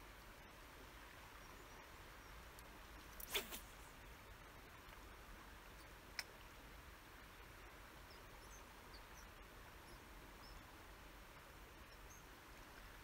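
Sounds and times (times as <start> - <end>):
faint river hiss: 0.0 - 13.0
faint high chirps: 11.7 - 13.0.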